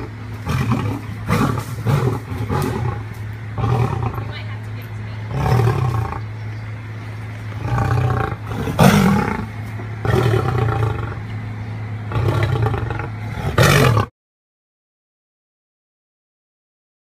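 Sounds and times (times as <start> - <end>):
tiger roaring: 0.0 - 4.5, 5.2 - 6.4, 7.4 - 14.1.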